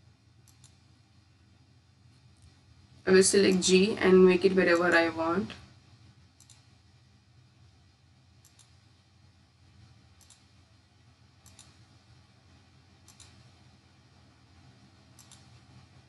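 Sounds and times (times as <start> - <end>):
low steady hum: 0.0 - 16.0
computer mouse clicks: 0.4 - 0.8, 6.4 - 6.7, 8.4 - 8.8, 10.1 - 10.6, 11.4 - 12.0, 13.0 - 13.6, 15.1 - 15.9.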